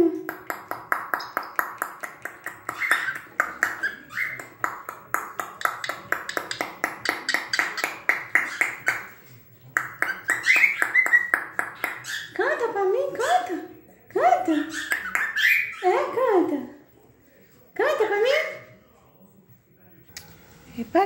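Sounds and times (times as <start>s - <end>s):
cockatiel chirping: 2.7s - 4.5s, 10.0s - 12.4s, 14.6s - 15.8s.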